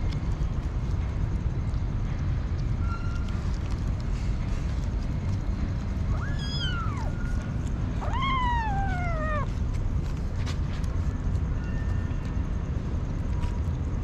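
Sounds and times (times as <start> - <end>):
steady low rumble: 0.0 - 14.0
kitten meowing: 6.1 - 7.4, 8.0 - 9.5.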